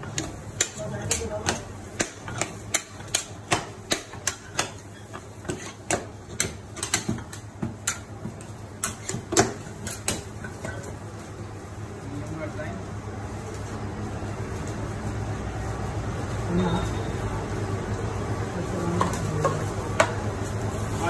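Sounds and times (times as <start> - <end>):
metal spatulas clacking on slab: 0.0 - 8.1.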